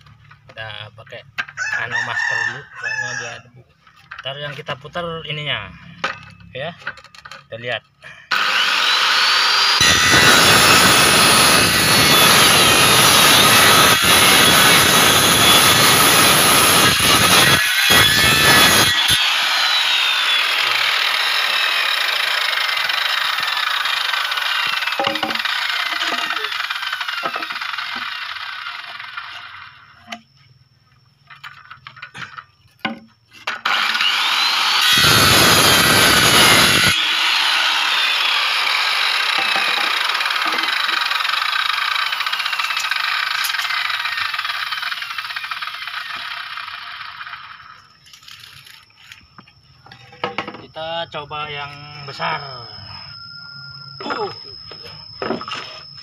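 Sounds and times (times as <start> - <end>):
circular saw cutting bamboo: 4.3 - 30.3, 32.2 - 49.2
bamboo poles knocking: 25.0 - 26.3, 32.2 - 33.6.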